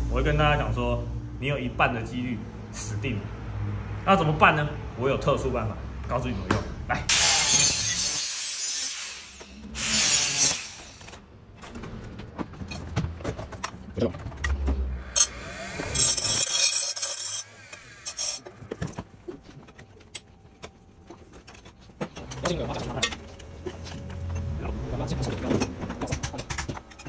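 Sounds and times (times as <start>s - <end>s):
angle grinder cutting metal: 7.1s - 11.1s, 15.2s - 18.4s
grinding wheel grinding metal: 7.1s - 11.1s, 15.0s - 18.8s
hand tools clinking and knocking: 10.5s - 24.6s.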